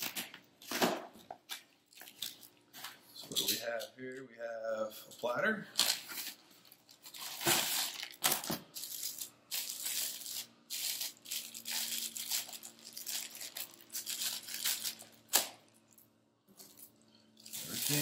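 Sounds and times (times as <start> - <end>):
plastic bag crinkling: 5.8 - 16.0, 16.7 - 18.0.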